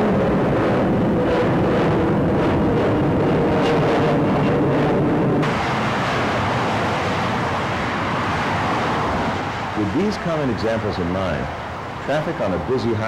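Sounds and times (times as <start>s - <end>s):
dense freeway traffic hiss: 0.0s - 13.0s
jet aircraft flying overhead: 0.0s - 13.0s.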